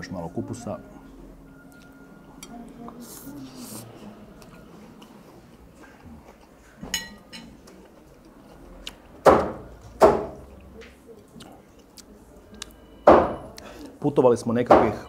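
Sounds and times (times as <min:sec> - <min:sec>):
dishes clinking: 0:06.8 - 0:07.6.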